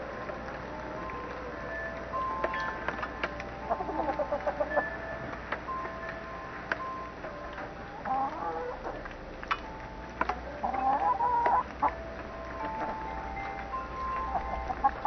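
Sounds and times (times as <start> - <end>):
hens clucking: 3.6 - 5.0, 7.9 - 9.1, 10.3 - 12.0, 14.0 - 15.0
long wavering hen calls: 3.6 - 5.0, 7.9 - 9.0, 10.6 - 11.9.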